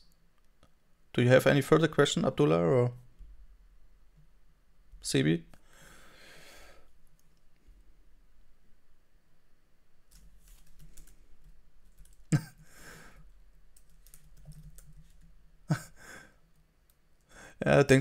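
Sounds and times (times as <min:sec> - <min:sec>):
keyboard typing: 0:10.1 - 0:12.5, 0:13.7 - 0:15.4.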